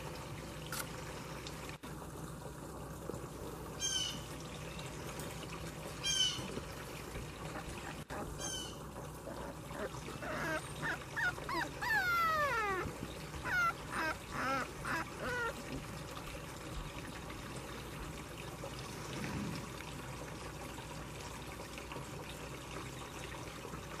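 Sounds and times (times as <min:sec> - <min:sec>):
puppies whining and yelping: 0:07.6 - 0:15.8.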